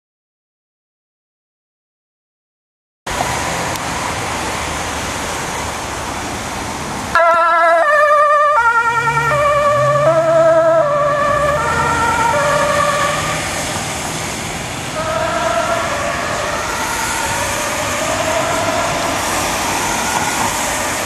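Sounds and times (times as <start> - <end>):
vehicle engine: 3.1 - 21.0
two-tone ambulance siren: 7.1 - 21.0
steady rushing noise: 11.4 - 21.0.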